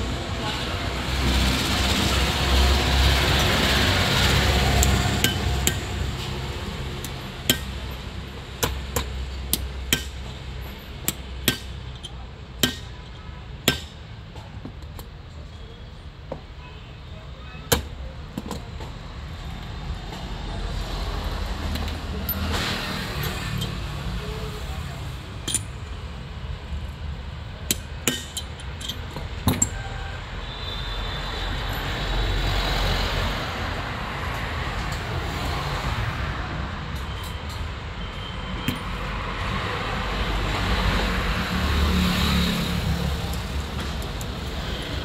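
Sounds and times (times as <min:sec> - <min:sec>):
metal tools clinking on workbench: 0:25.4 - 0:25.8.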